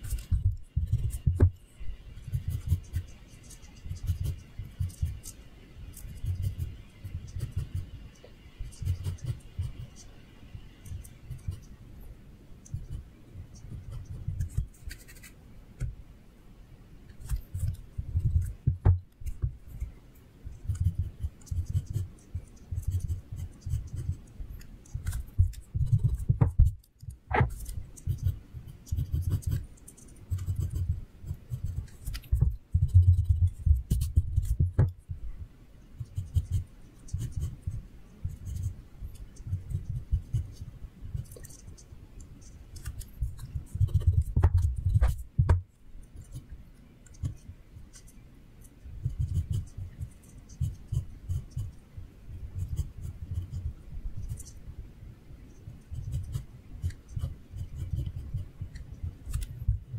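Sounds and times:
pencil sketching on paper: 0:00.0 - 0:01.6, 0:02.2 - 0:08.0, 0:08.6 - 0:10.1, 0:10.9 - 0:11.7, 0:20.6 - 0:26.8, 0:27.4 - 0:34.7, 0:49.0 - 0:51.8, 0:52.6 - 0:53.6, 0:55.9 - 0:59.5.

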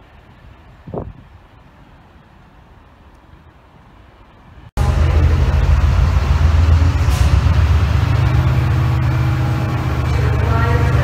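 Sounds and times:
locomotive engine droning: 0:04.7 - 0:11.0.

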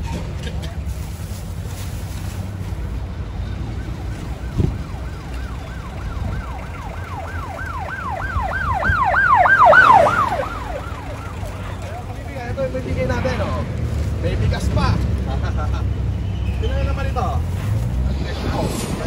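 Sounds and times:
street traffic rumble: 0:00.0 - 0:19.0
emergency siren yelping: 0:03.4 - 0:12.2.

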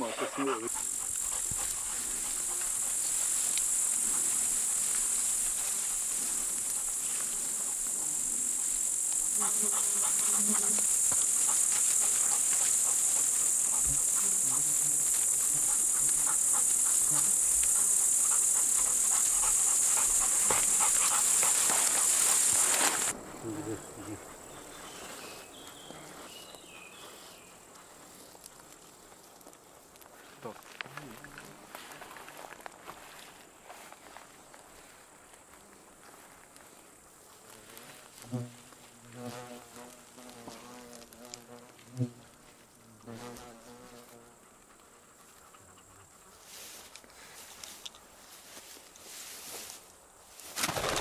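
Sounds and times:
dog panting: 0:00.0 - 0:04.3, 0:09.4 - 0:23.1, 0:44.4 - 0:46.8
rustling through tall grass: 0:00.0 - 0:44.2, 0:46.1 - 0:51.0
insects chirping: 0:00.0 - 0:51.0.

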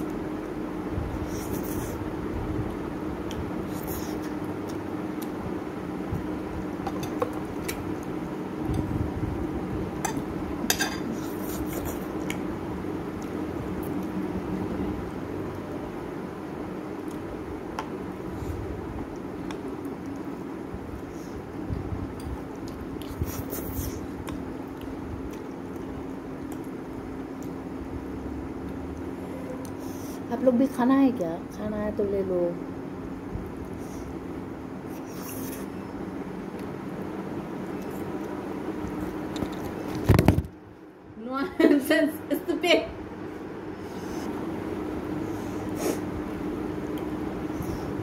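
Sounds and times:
steady low hum: 0:00.0 - 0:48.0
people chewing noodles: 0:02.7 - 0:05.4, 0:11.1 - 0:12.4, 0:22.3 - 0:27.7, 0:34.8 - 0:35.8
cutlery clinking on plates: 0:10.1 - 0:11.1
wet mouth and finger sounds: 0:22.6 - 0:26.7.

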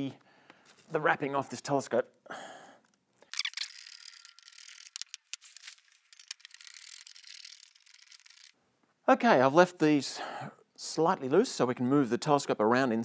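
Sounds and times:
rubbing and rustling: 0:03.6 - 0:08.6.

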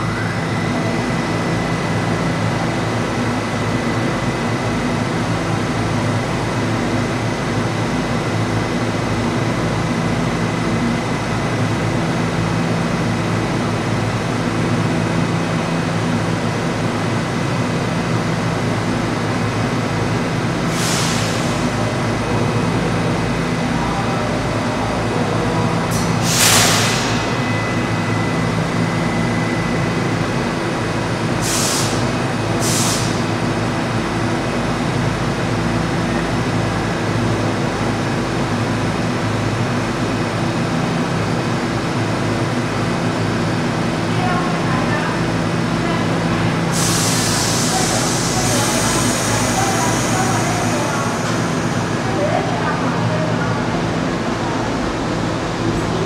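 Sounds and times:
subway car equipment hum: 0:00.0 - 0:56.0
air release hisses: 0:26.0 - 0:27.3, 0:31.4 - 0:33.2, 0:46.7 - 0:51.8.

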